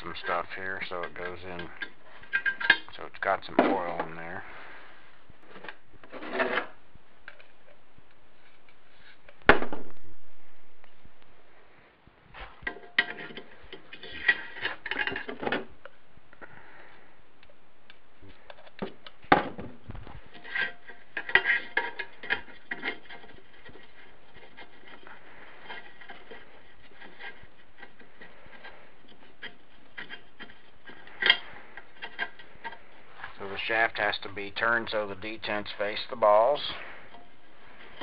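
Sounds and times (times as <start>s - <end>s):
metal clicks and scrapes: 12.4s - 15.6s, 20.2s - 38.0s.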